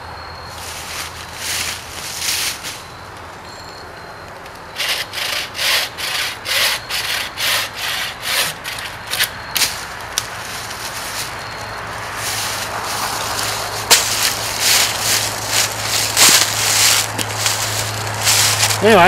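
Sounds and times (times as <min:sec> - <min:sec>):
saw rasping through wood: 0:04.7 - 0:09.3.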